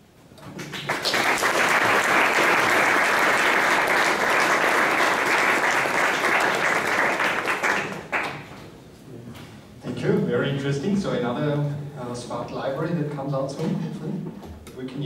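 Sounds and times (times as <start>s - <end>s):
audience applauding: 0.5s - 8.6s.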